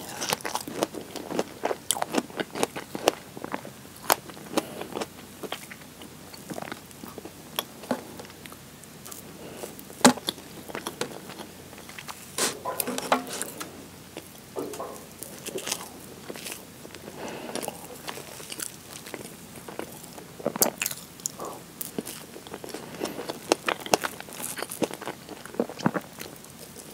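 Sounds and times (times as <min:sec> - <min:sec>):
close chewing and mouth sounds: 0:00.0 - 0:12.4, 0:13.2 - 0:26.9.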